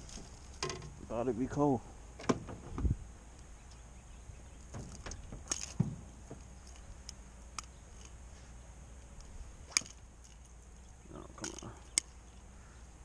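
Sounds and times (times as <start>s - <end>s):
low steady hum: 0.0s - 13.0s
fishing gear clicks and knocks: 4.6s - 8.2s, 9.2s - 10.7s, 11.3s - 12.2s.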